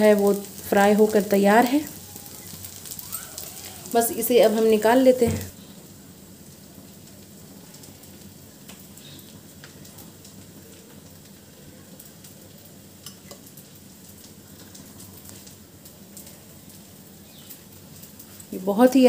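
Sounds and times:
hot oil sizzling: 0:00.0 - 0:19.0.

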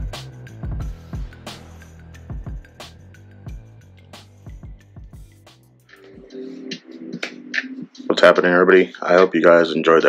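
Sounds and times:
kick drums: 0:00.0 - 0:01.4, 0:02.3 - 0:02.8, 0:04.5 - 0:05.4.

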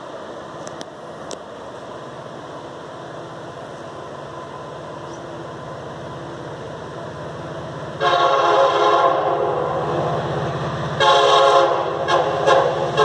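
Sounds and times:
diesel locomotive rumbling: 0:00.0 - 0:13.0
locomotive air horn chord: 0:08.0 - 0:10.1, 0:11.0 - 0:13.0.

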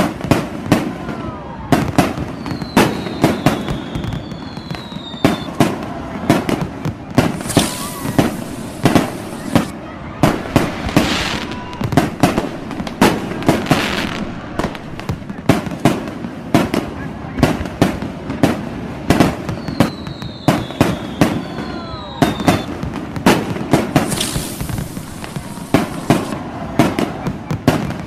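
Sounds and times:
fireworks bangs: 0:00.0 - 0:28.0
firework whistles: 0:01.7 - 0:16.1, 0:19.2 - 0:28.0
crackling hiss: 0:07.1 - 0:16.1, 0:22.3 - 0:26.4.

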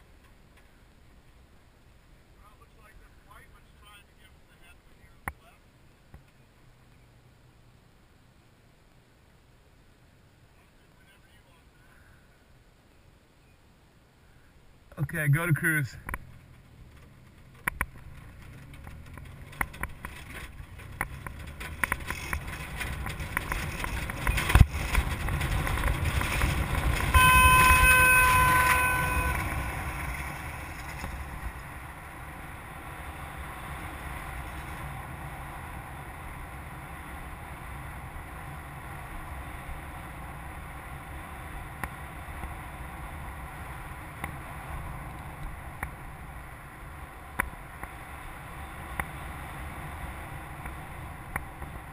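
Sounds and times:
steady electronic tone: 0:27.1 - 0:29.9.

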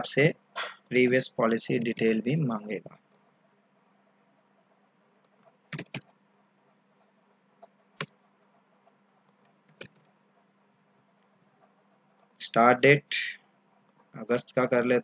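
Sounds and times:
faint steady hum: 0:00.0 - 0:15.0
computer keys and mouse clicks: 0:05.2 - 0:06.2, 0:07.0 - 0:10.5.

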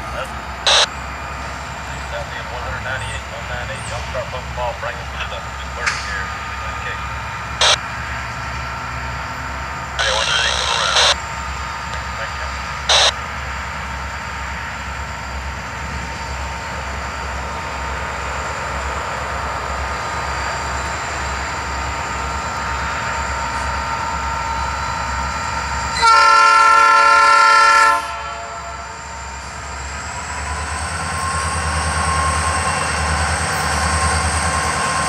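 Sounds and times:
diesel locomotive engines running: 0:00.0 - 0:35.0
locomotive air horn blast: 0:26.0 - 0:28.8.

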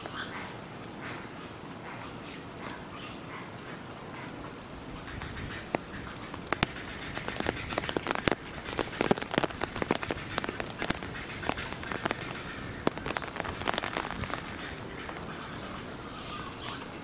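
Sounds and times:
rain falling: 0:00.0 - 0:17.0
sharp raindrop hits: 0:04.4 - 0:17.0.

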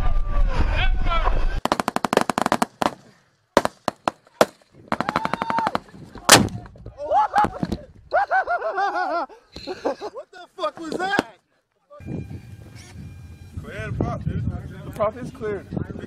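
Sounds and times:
rifle shots: 0:01.6 - 0:06.6.

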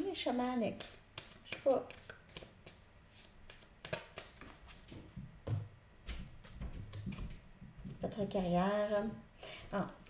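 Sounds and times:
cards shuffling: 0:00.3 - 0:05.2.

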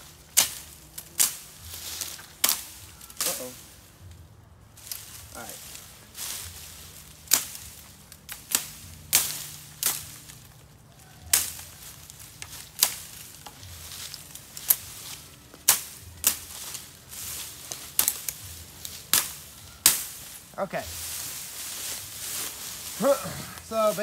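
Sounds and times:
machete chopping bamboo: 0:00.2 - 0:03.6, 0:07.1 - 0:10.5, 0:11.2 - 0:17.0, 0:17.6 - 0:20.4.

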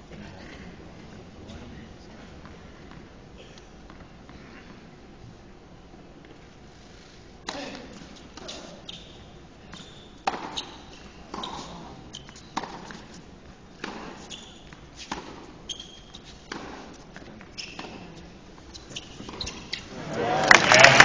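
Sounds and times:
shoes squeaking on court: 0:07.4 - 0:20.0.

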